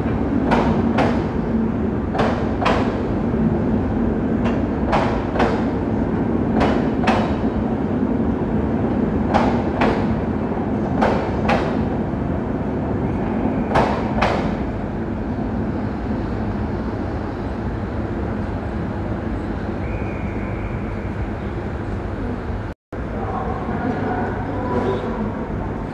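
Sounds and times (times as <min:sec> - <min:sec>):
train coaches rumbling past: 0:00.0 - 0:25.9
wheel clacks on rail joint: 0:00.4 - 0:01.3, 0:02.1 - 0:03.0, 0:04.4 - 0:05.8, 0:06.5 - 0:07.5, 0:09.3 - 0:10.2, 0:10.9 - 0:11.9, 0:13.7 - 0:14.7.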